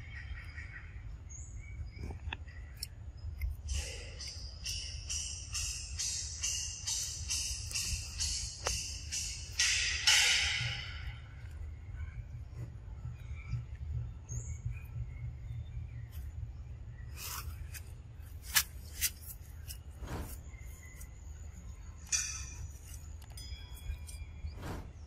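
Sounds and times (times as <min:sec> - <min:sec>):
steady low rumble: 0:00.0 - 0:25.0
sharp clicks and rustles: 0:17.1 - 0:21.1.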